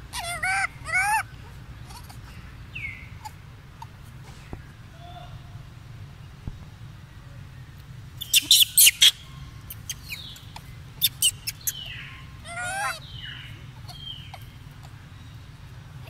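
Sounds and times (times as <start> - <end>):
monkey wavering call: 0.0 - 2.2, 8.2 - 14.9
monkey high-pitched squeaks: 0.1 - 2.2, 8.2 - 13.1, 13.7 - 14.6.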